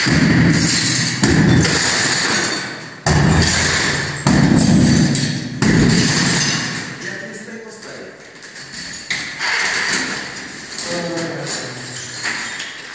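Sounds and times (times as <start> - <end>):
demolition hammer chiseling brick: 0.0 - 7.0.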